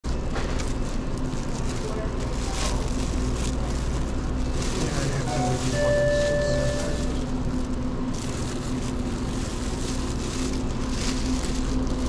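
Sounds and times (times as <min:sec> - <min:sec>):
low hum of coolers: 0:00.0 - 0:12.0
plastic bag crinkling: 0:00.0 - 0:12.0
electronic beep: 0:05.3 - 0:07.0.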